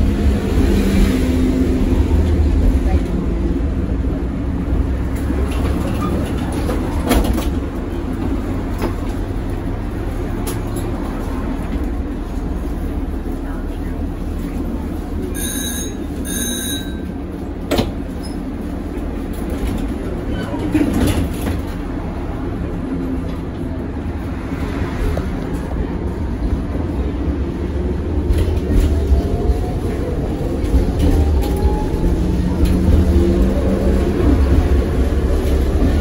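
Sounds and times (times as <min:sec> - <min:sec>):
tram wheels rumbling on rails: 0:00.0 - 0:36.0
short beeps: 0:15.3 - 0:17.1.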